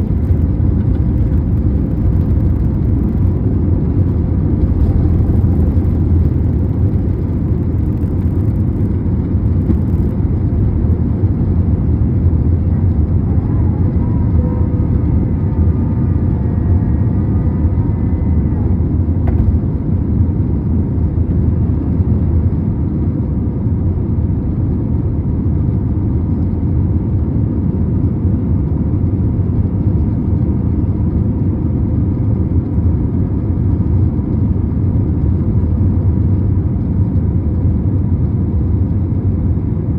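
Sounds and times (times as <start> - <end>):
faint whining tones: 0.0 - 20.0
jet engines rumbling: 0.0 - 39.9.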